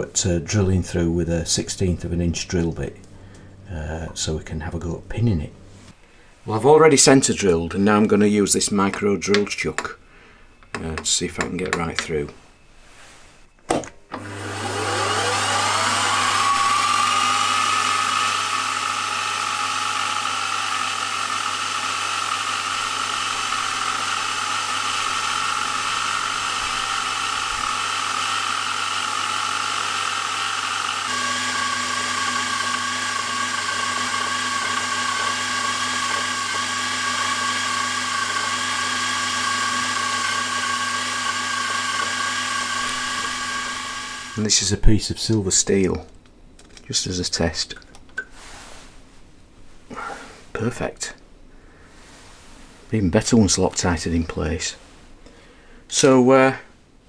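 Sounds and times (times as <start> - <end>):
milling machine spindle whine: 14.1 - 44.6.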